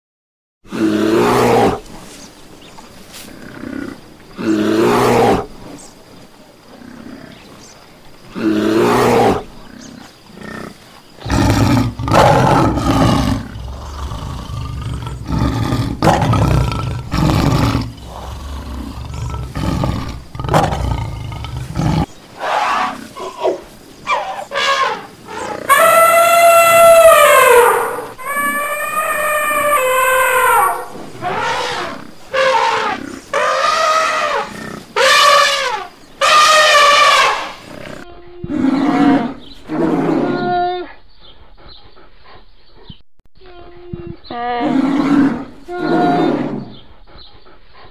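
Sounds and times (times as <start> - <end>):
wild animals roaring and growling: 0.7 - 1.9, 3.3 - 5.6, 6.7 - 41.8, 44.2 - 47.9
elephant trumpeting: 11.3 - 40.9, 43.6 - 46.6.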